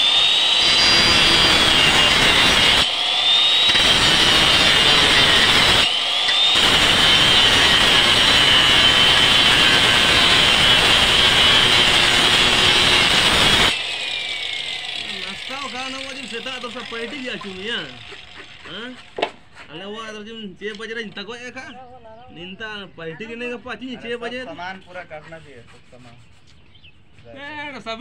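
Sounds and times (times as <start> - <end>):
power cutter whining: 0.0 - 19.5.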